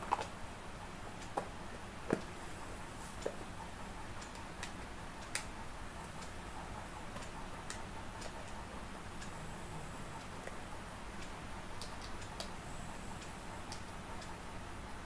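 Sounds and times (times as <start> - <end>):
low background noise: 0.0 - 15.0.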